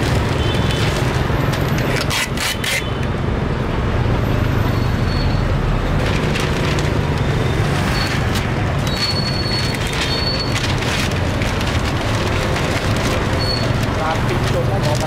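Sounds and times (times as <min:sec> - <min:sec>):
crowd background noise: 0:00.0 - 0:15.0
traffic rumble: 0:00.0 - 0:15.0.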